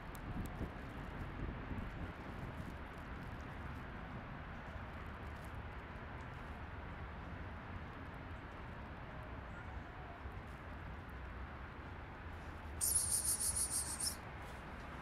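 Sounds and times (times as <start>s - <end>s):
high-pitched trilling call: 12.8s - 14.2s.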